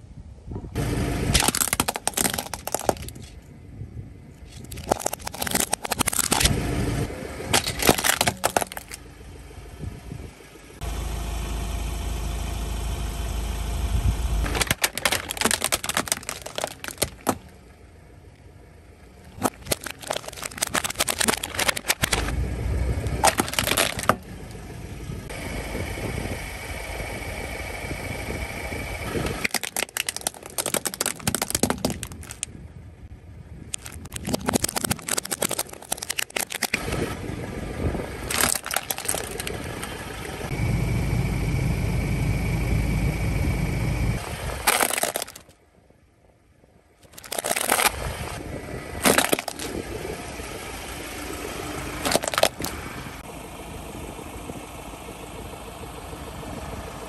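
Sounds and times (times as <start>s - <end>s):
car engine running low: 0.1s - 57.0s
plastic toys cracking under tyre: 1.3s - 3.4s, 4.5s - 6.5s, 7.5s - 9.0s, 14.4s - 17.6s, 19.2s - 22.4s, 23.0s - 24.3s, 29.1s - 32.5s, 33.7s - 37.2s, 38.2s - 40.0s, 44.6s - 45.6s, 47.0s - 48.2s, 49.0s - 49.8s, 52.0s - 52.8s.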